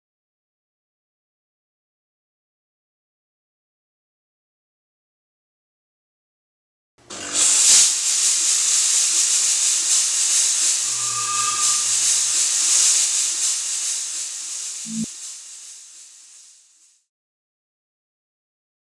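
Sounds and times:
fog generator hissing: 7.0 - 17.1.

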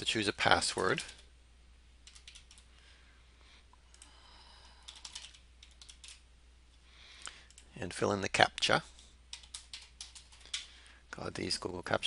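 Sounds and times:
steady low hum: 0.0 - 11.8
keyboard keystrokes: 2.0 - 2.6.

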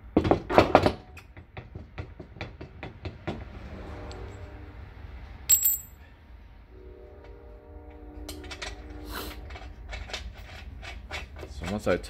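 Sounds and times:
metal washers clinking: 5.5 - 6.1.

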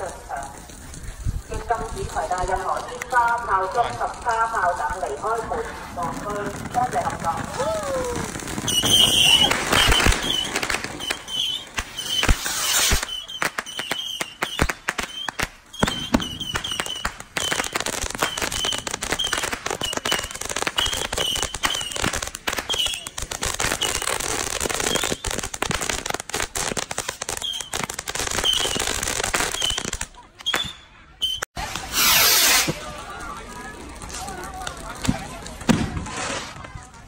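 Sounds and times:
firework crackling pops: 0.0 - 37.0
short high firework chirps: 8.5 - 24.2, 27.0 - 32.9.

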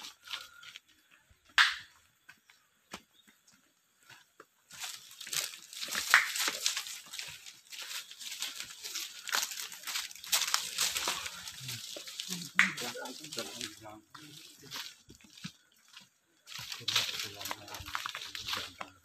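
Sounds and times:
footsteps crunching on leaves: 2.2 - 19.0
foliage brushing: 4.9 - 15.8.

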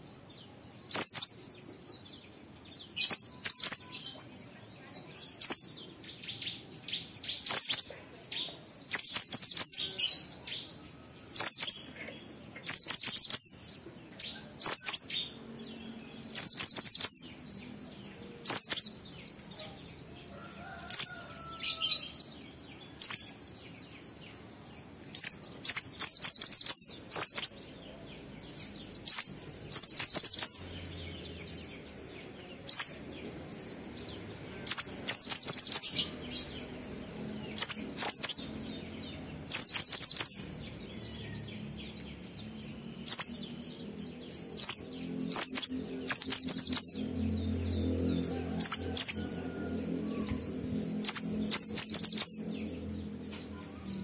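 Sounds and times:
bird chirping high-pitched notes: 0.9 - 1.4, 18.5 - 18.9, 44.6 - 47.3.

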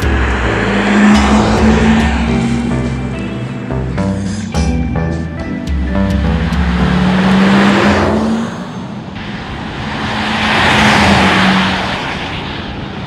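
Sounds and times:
tyre and road noise: 0.0 - 13.0.

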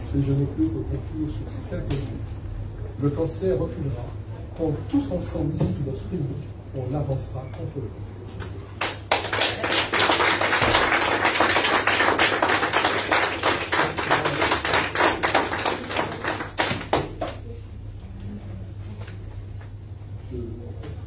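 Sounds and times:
audience applauding: 8.8 - 17.4.

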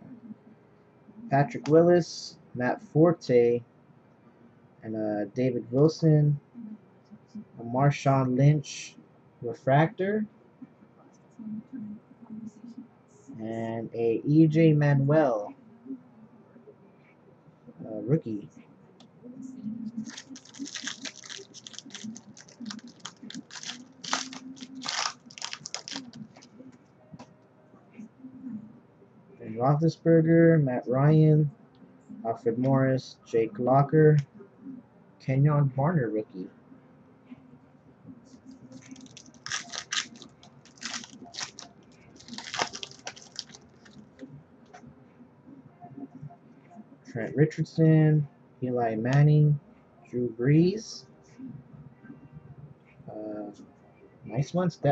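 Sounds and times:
foil wrapper tearing and crinkling: 20.0 - 26.5, 38.8 - 41.6, 42.2 - 44.0.

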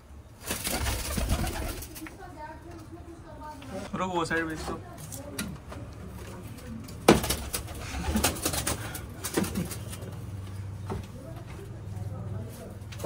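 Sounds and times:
pigeons cooing: 7.4 - 10.0.

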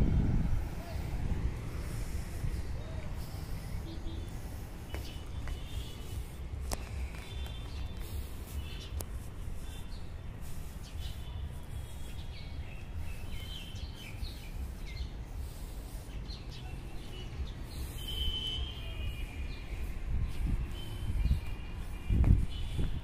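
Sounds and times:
low outdoor rumble: 0.0 - 18.0
birds chirping: 0.8 - 23.0.

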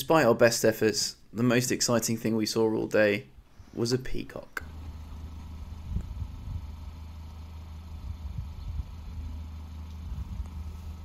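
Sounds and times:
car engine idling: 4.6 - 11.0.

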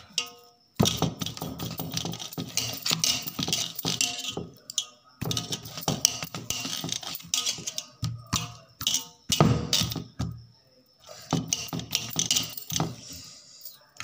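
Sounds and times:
steel bowls clinking and scraping: 0.0 - 10.2, 11.0 - 14.0
potatoes squashing: 0.0 - 10.4.

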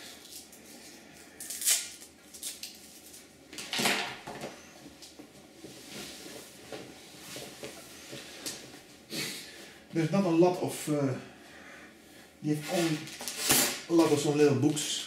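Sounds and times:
packaging rustling and scraping: 12.5 - 14.9.

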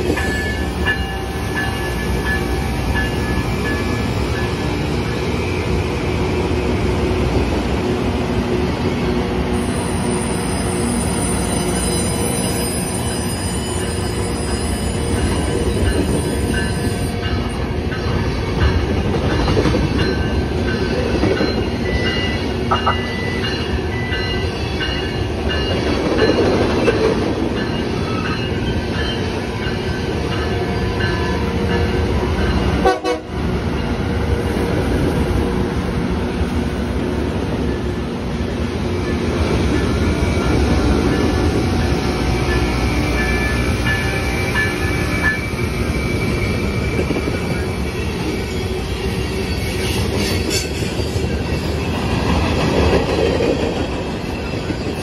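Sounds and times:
rail grinder train rumble and rasp: 0.0 - 55.0.

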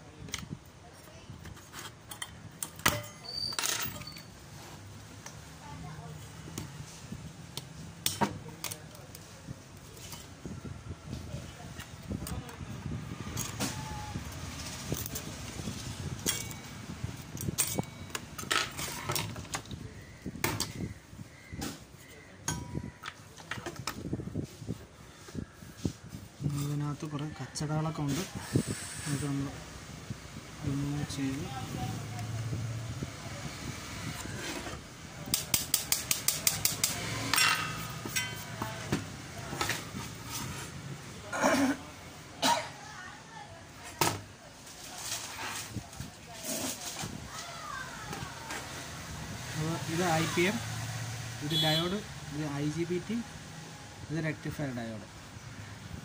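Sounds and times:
scraping rustle: 37.0 - 40.8, 44.5 - 49.0.

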